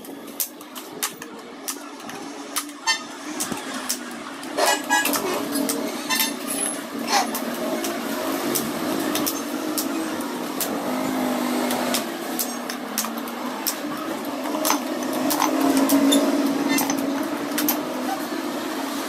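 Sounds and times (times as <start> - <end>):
street traffic hum: 0.0 - 19.0
bolt cutters snapping metal spokes: 11.7 - 17.8.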